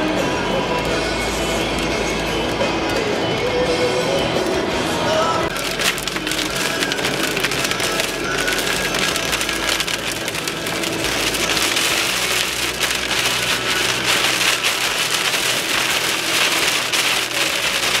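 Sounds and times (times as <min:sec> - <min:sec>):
rain pelting car roof: 0:05.4 - 0:18.0.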